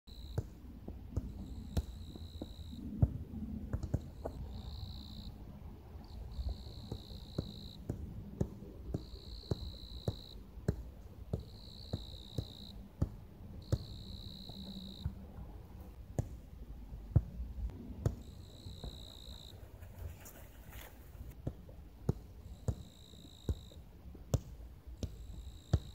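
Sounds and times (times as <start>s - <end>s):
crickets singing: 4.2s - 5.4s, 13.6s - 15.1s
football taps on feet: 6.8s - 13.9s.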